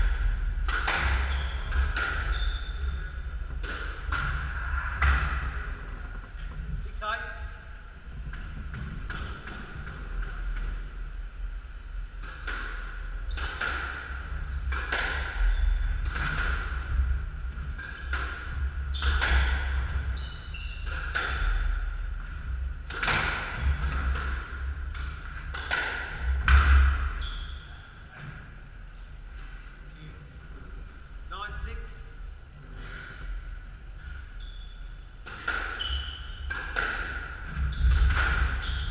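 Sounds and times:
squash ball hitting racquets and walls: 0.0 - 6.4, 12.1 - 27.3, 35.2 - 38.9.

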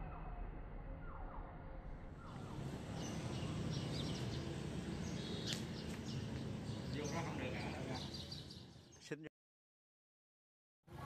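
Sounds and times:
low hum: 0.0 - 5.3.

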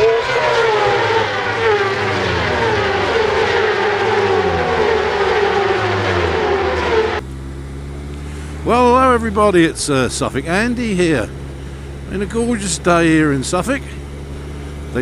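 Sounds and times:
racing motorcycles passing at high revs: 0.0 - 7.2
motorcycle engine running steadily: 0.0 - 15.0.

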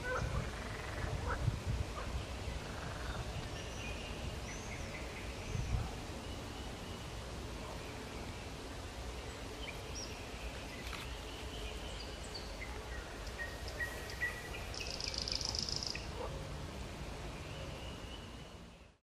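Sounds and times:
birds chirping and whistling: 9.6 - 16.1.

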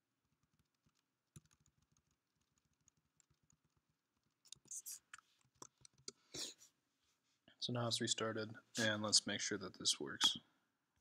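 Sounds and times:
keyboard typing: 0.3 - 6.2.

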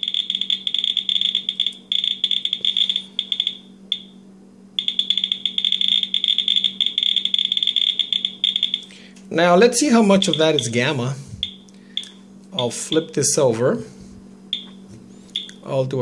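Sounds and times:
geiger counter clicking rapidly: 0.0 - 4.0, 4.8 - 8.8, 10.2 - 10.8.

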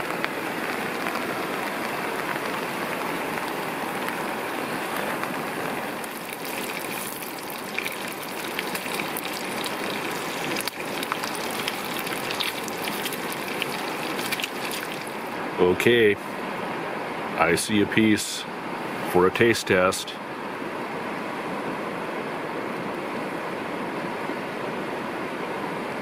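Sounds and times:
rain pattering on a tarp: 0.0 - 15.4
bacon sizzling in a frying pan: 0.6 - 15.4.

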